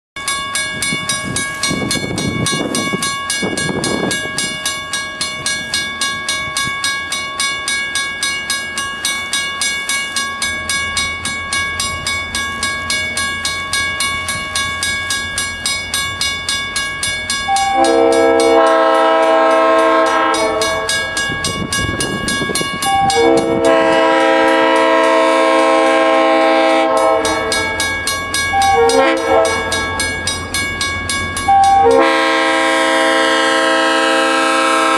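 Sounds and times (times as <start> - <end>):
railroad crossing bell ringing: 0.2 - 34.9
locomotive air horn blasts: 17.6 - 21.1, 22.9 - 27.6, 28.6 - 29.8, 31.6 - 34.9.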